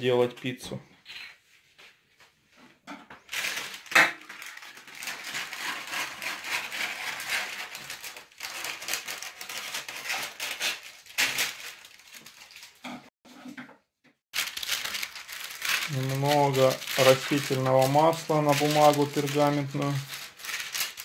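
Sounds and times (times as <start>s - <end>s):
baking paper rustling and crinkling: 3.2s - 13.1s, 14.3s - 21.0s.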